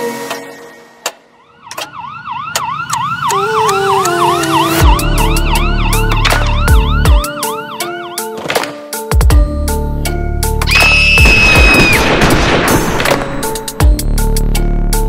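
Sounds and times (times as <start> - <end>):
siren yelping: 1.3 - 8.3
held synth notes: 2.0 - 8.2.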